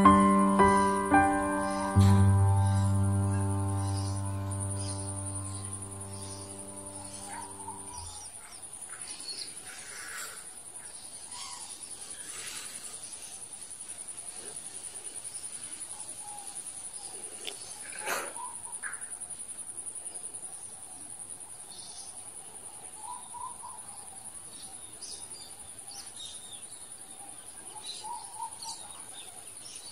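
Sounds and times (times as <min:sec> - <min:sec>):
insects buzzing: 0:00.0 - 0:08.3.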